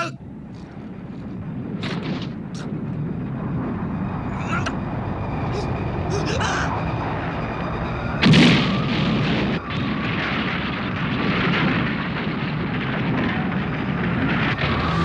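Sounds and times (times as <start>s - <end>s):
heavy rumbling: 0.0s - 15.0s
loud crash: 1.5s - 4.7s, 8.1s - 15.0s.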